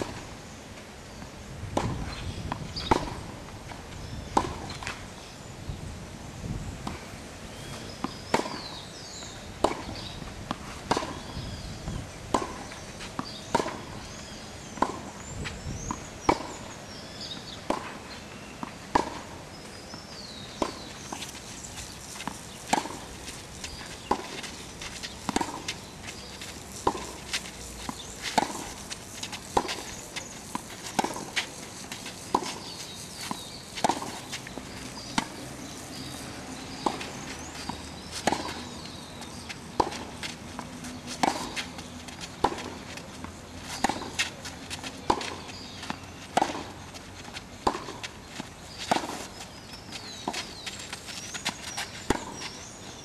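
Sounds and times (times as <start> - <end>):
racket hitting tennis ball: 1.8 - 3.4, 4.3 - 4.9, 8.0 - 8.8, 9.6 - 11.4, 12.3 - 14.0, 17.2 - 52.6.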